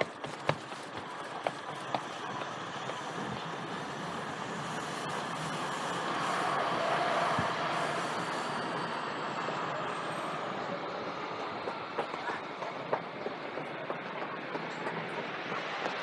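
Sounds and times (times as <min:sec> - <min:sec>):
footsteps on concrete steps: 0:00.0 - 0:03.3
train rumbling on tracks: 0:00.0 - 0:16.0.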